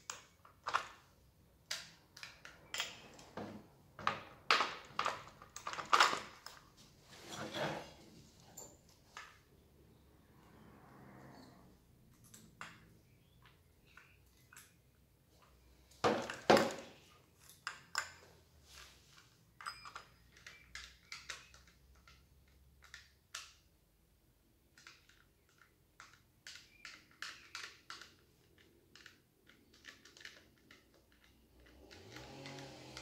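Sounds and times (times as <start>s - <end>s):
saw chain clicking and rattling: 29.8s - 33.0s.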